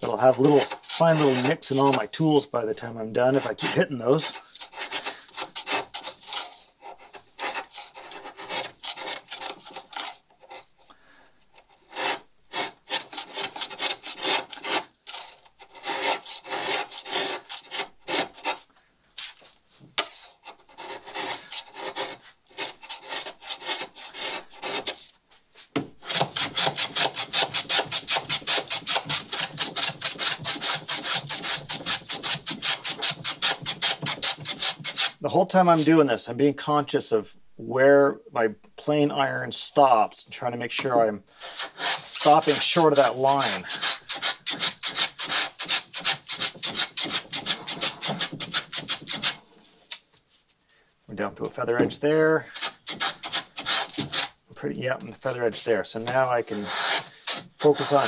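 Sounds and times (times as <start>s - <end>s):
block plane shaving wood: 0.0s - 2.1s, 3.3s - 10.6s, 11.6s - 18.6s, 20.0s - 25.1s, 26.0s - 35.2s, 41.4s - 49.4s, 51.8s - 54.4s, 55.2s - 58.0s
hand file rasping on plywood: 0.1s - 2.1s, 3.3s - 10.8s, 11.5s - 18.7s, 20.0s - 25.1s, 26.0s - 35.2s, 41.4s - 49.4s, 52.4s - 54.4s, 55.5s - 58.0s.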